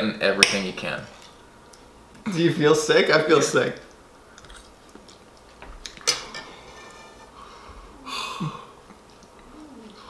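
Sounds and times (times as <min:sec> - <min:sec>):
cutlery clicking on plate: 0:05.9 - 0:07.2.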